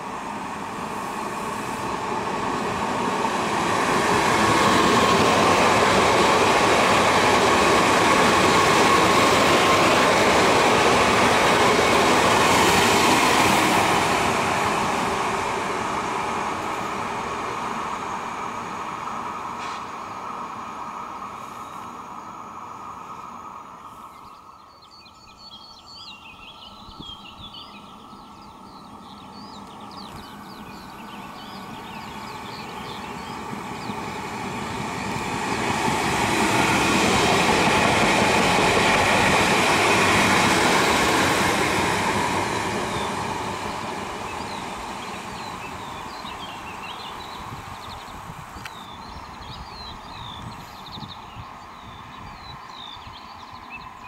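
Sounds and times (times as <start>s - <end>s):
electric train passing: 0.0s - 54.0s
birds chirping: 23.8s - 54.0s.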